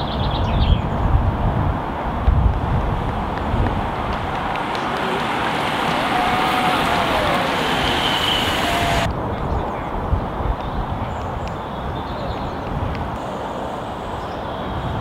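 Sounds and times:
wind rumbling on microphone: 0.0s - 15.0s
cyclists riding past: 1.0s - 9.1s.

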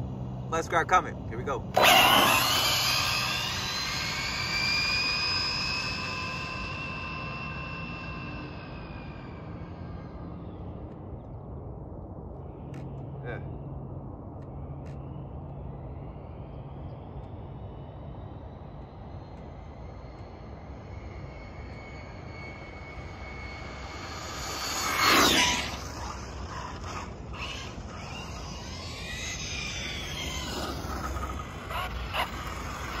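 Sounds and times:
electric rc car motor whining: 1.7s - 10.6s, 20.1s - 33.0s.

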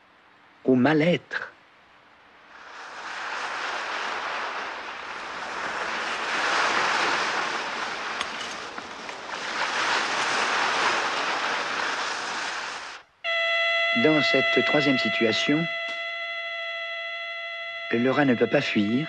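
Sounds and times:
waves washing onto pebbles: 2.5s - 13.0s.

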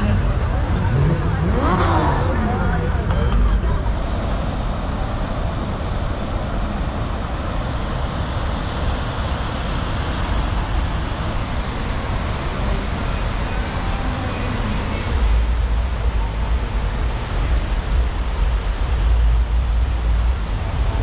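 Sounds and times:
low rumble: 0.0s - 9.8s.

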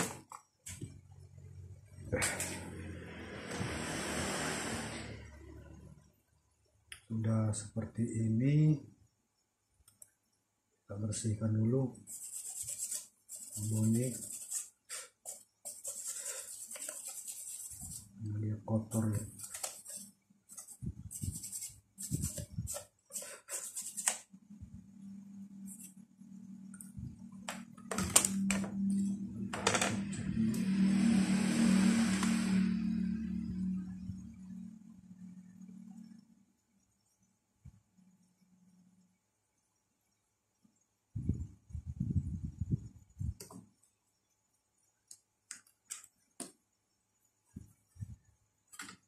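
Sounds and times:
steady low hum: 10.2s - 37.2s
brush scratching circuit board: 11.9s - 24.3s, 25.5s - 26.1s.

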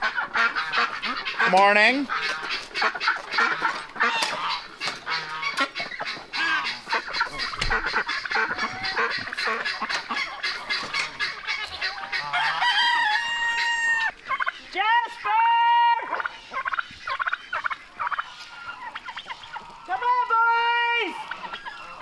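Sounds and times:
chickens clucking: 0.0s - 22.0s
rooster crowing: 12.2s - 14.1s.

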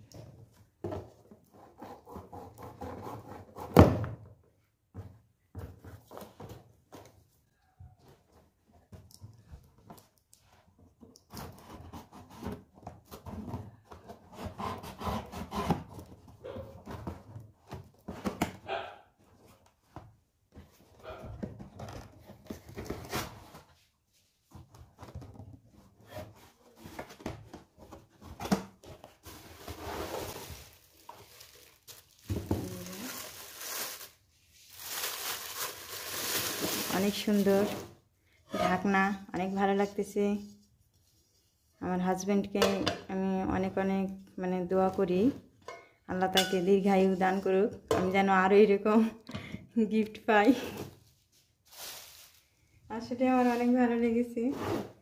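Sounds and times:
knife sawing through plastic string: 14.3s - 15.9s.

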